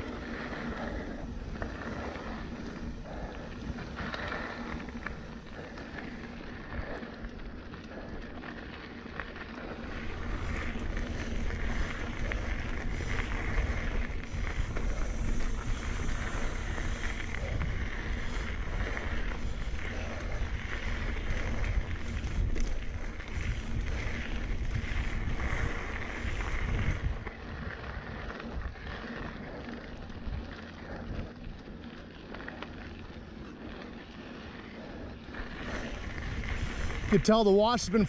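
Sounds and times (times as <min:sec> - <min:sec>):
bike tyres on dirt trail: 0:00.0 - 0:38.0
wind buffeting microphone: 0:09.7 - 0:31.7, 0:34.6 - 0:38.0.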